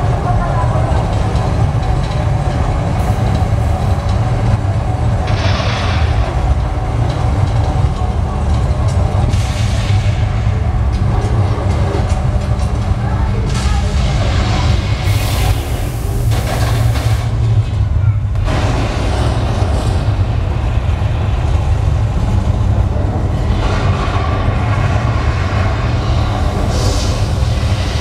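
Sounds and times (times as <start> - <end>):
deep steady rumble: 0.0 - 28.0.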